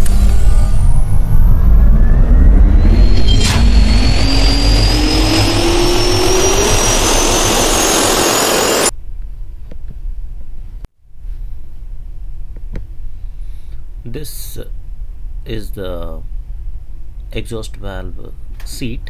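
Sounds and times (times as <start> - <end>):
jet engine spooling up: 0.0 - 8.9.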